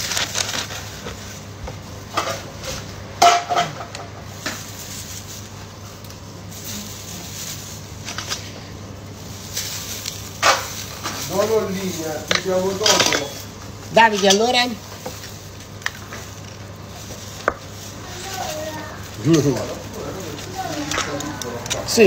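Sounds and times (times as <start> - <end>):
steady low hum: 0.0 - 22.0
handling knocks and clinks: 12.2 - 16.4.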